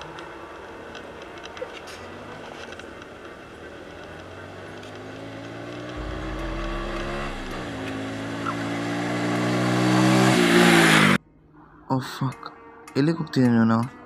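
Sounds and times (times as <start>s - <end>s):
motorbike engine approaching: 4.2s - 9.6s.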